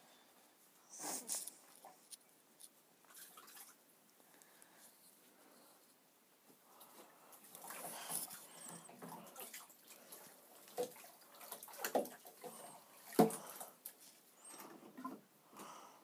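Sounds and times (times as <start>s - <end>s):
water sloshing and splashing: 3.1s - 3.8s, 6.8s - 14.1s.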